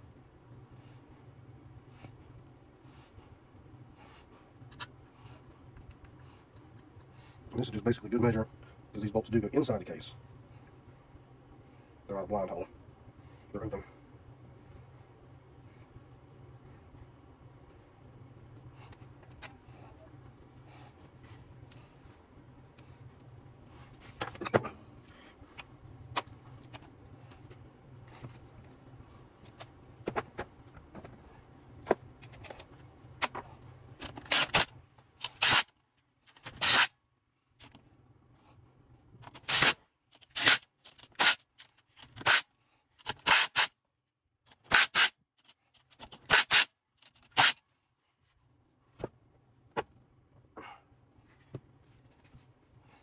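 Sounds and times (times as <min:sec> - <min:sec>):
light clicking and parts handling: 0:18.5 - 0:34.4.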